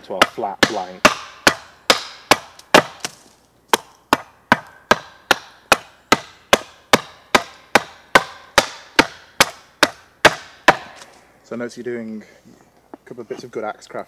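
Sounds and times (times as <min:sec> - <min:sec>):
axe chopping wood: 0:00.0 - 0:11.2.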